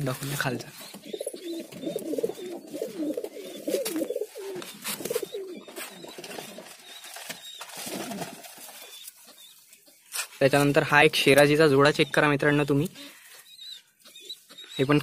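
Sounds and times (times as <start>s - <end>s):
pigeons cooing: 0.2s - 9.9s.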